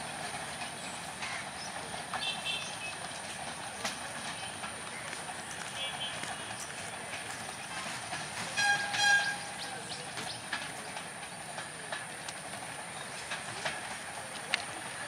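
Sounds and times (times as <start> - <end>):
short horn beeps: 8.6 - 9.5.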